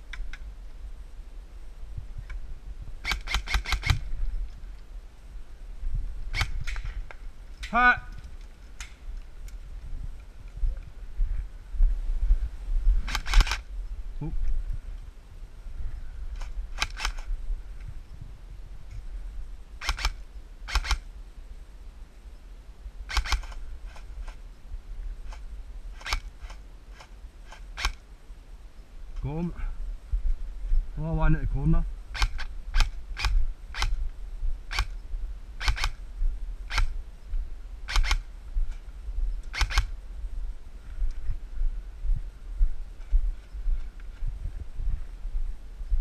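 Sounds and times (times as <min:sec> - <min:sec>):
low rumble: 0:00.0 - 0:27.5, 0:28.2 - 0:46.0
airsoft gun shots: 0:03.0 - 0:04.0.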